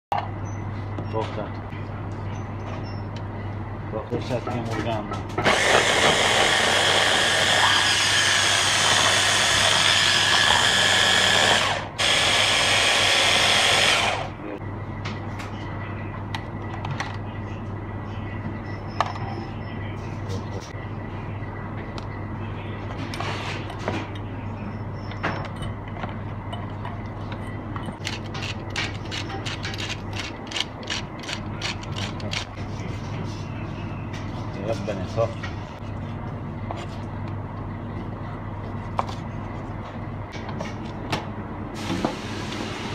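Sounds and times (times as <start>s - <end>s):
hand blender motor chopping: 5.4s - 14.3s
pepper mill grinding: 28.0s - 32.5s.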